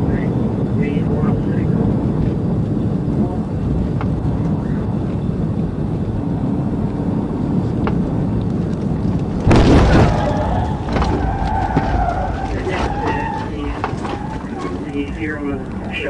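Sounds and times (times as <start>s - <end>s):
wind and road roar in car: 0.0s - 16.0s
loud vehicle crash: 9.3s - 15.6s.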